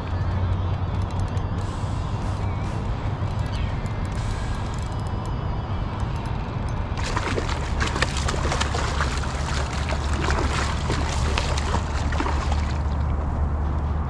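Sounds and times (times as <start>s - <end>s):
steady low rumble: 0.0s - 14.0s
water splashing and sloshing: 6.9s - 14.0s.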